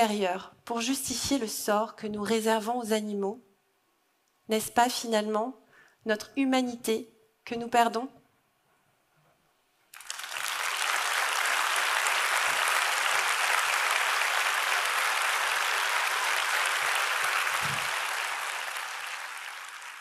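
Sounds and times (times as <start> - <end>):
audience applauding: 9.9 - 20.0.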